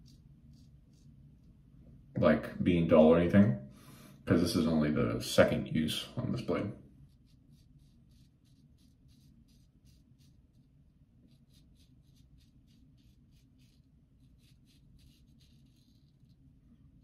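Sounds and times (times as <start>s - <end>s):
razor scraping stubble: 7.1s - 16.5s.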